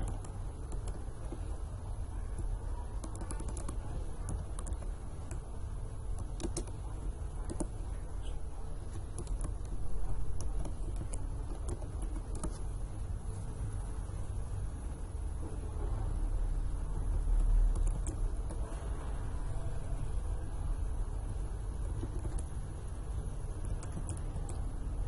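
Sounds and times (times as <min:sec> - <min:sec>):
keyboard typing clicks: 0:00.0 - 0:01.5, 0:02.3 - 0:05.4, 0:06.0 - 0:06.8, 0:07.4 - 0:07.8, 0:08.9 - 0:12.7, 0:17.1 - 0:18.6, 0:21.8 - 0:22.6, 0:23.6 - 0:24.7
steady low hum: 0:00.0 - 0:25.0.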